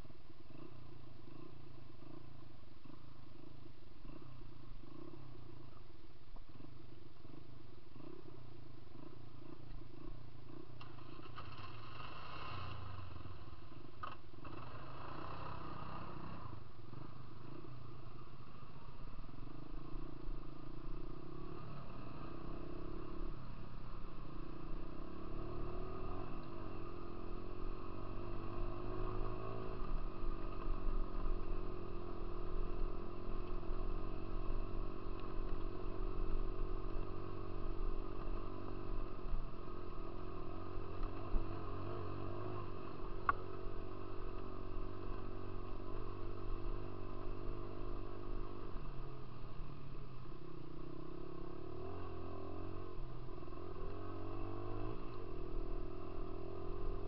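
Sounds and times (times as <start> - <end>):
dirt bike engine revving: 10.9 - 17.0.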